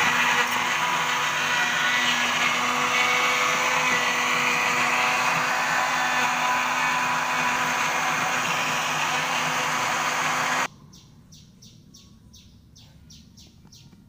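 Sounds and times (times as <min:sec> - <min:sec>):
blender running: 0:00.0 - 0:10.7.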